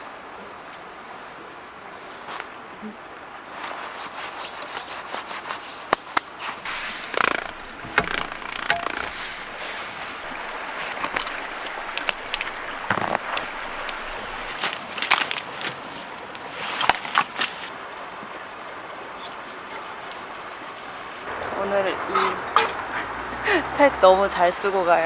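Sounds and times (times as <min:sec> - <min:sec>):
nylon fabric rustling: 0:03.6 - 0:17.7
gear clicking and knocking: 0:07.1 - 0:09.4.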